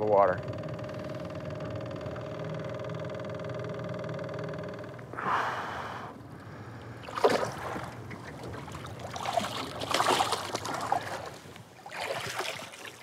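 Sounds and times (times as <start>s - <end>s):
outboard motor idling: 0.0s - 11.6s
fish thrashing water splashing: 7.0s - 13.0s.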